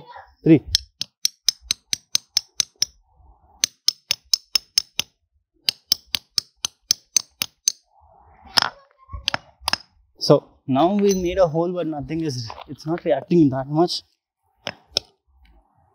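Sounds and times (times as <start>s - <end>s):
hammer tapping metal nail: 0.7s - 3.0s, 3.6s - 7.8s, 9.2s - 9.9s.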